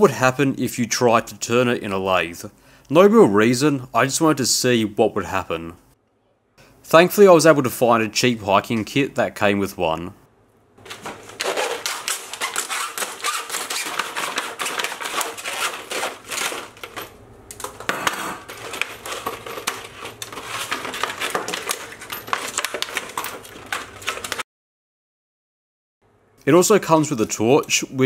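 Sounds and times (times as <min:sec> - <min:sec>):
plastic packaging crackling: 0:10.8 - 0:17.2, 0:18.4 - 0:24.4.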